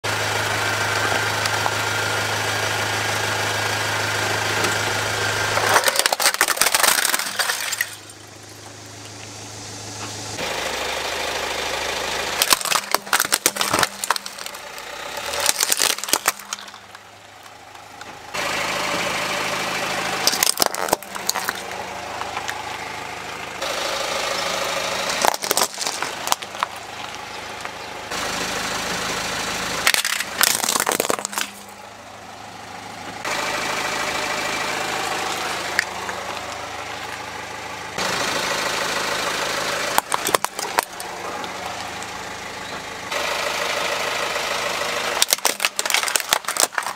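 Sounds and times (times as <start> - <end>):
car engine running: 0.0 - 46.9
plastic toys crunching under tyre: 5.5 - 8.6, 12.4 - 18.1, 20.2 - 22.7, 24.8 - 27.8, 29.8 - 31.8, 39.9 - 42.1, 45.1 - 46.9.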